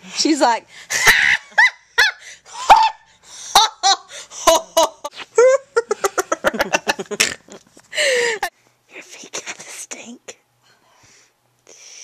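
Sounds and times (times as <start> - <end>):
girl laughing: 0.9 - 8.5.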